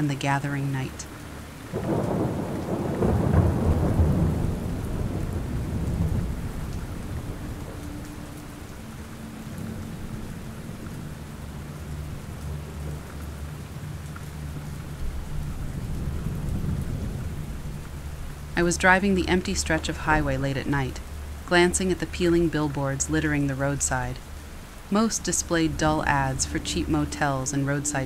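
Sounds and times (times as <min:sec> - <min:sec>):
steady rain falling: 0:00.0 - 0:28.0
thunder rumbling: 0:00.8 - 0:28.0.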